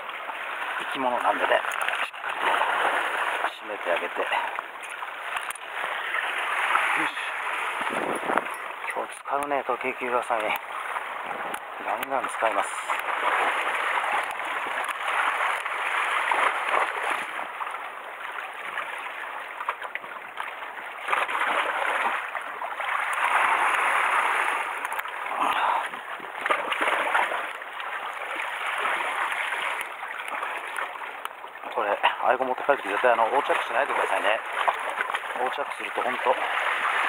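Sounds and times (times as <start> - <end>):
waves splashing over rocks: 0.0 - 37.0.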